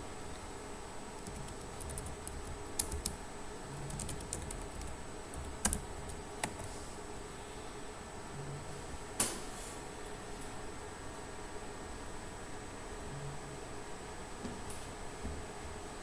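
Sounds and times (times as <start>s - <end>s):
keyboard keys clicking: 1.2s - 3.2s, 3.8s - 6.7s.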